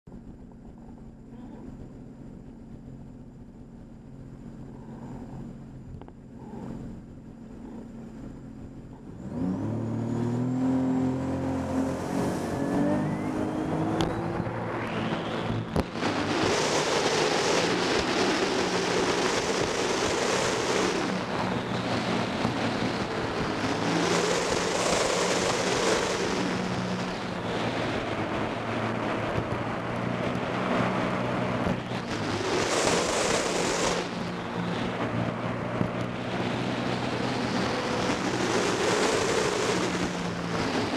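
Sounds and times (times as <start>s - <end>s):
watercraft engine revving: 0.6s - 40.9s
rush of water and wind: 8.6s - 40.9s.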